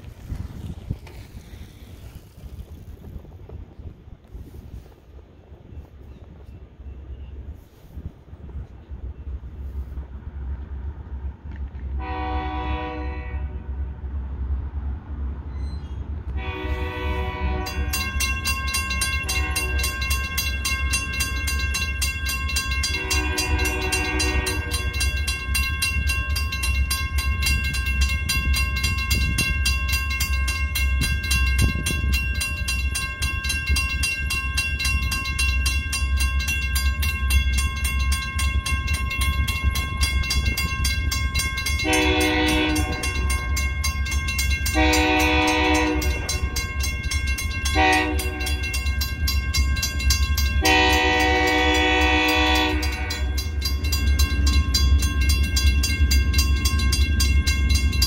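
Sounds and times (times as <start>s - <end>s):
crossing warning bell ringing: 12.0s - 13.5s, 15.4s - 58.0s
locomotive air horn: 12.0s - 13.8s, 16.3s - 18.1s, 19.2s - 20.0s, 22.8s - 25.1s, 41.8s - 43.3s, 44.7s - 46.4s, 47.7s - 48.7s, 50.6s - 53.4s.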